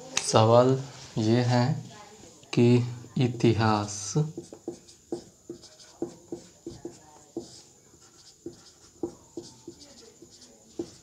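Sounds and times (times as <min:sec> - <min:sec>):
marker squeaking on whiteboard: 0:04.2 - 0:11.0.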